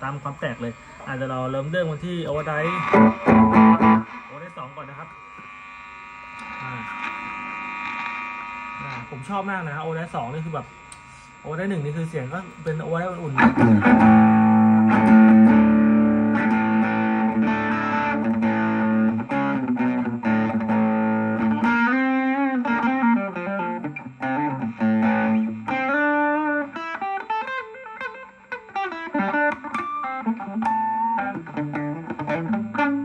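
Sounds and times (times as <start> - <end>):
distorted electric guitar: 0.0 - 33.0
guitar lead with bending notes: 2.3 - 4.5, 13.3 - 33.0.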